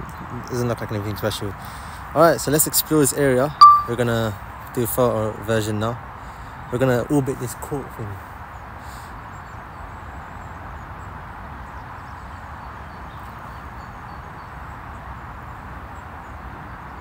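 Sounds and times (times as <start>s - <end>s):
outdoor background noise: 0.0s - 17.0s
faint high bird chirps: 3.6s - 4.0s.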